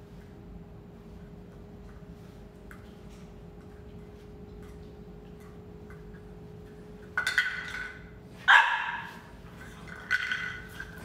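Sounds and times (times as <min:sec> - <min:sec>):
puppy barking: 0:08.4 - 0:09.3.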